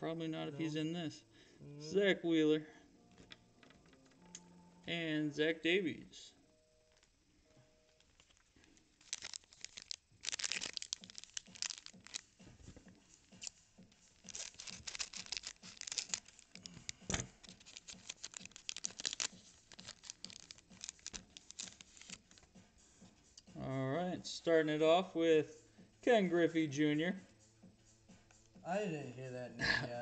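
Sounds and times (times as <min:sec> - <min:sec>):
foil wrapper crinkling and tearing: 0:08.0 - 0:12.5, 0:13.3 - 0:13.5, 0:14.2 - 0:22.4.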